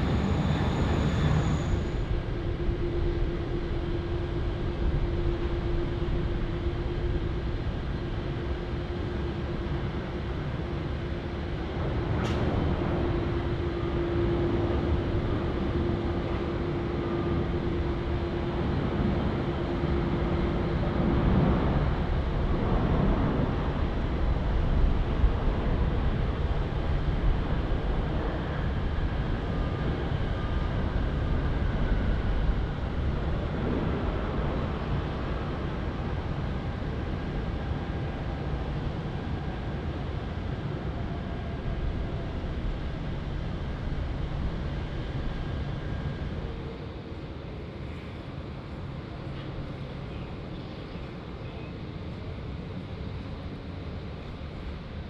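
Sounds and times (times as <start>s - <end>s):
jet landing rush: 0.0s - 2.0s
jet engine hum: 0.0s - 7.6s, 11.4s - 55.0s.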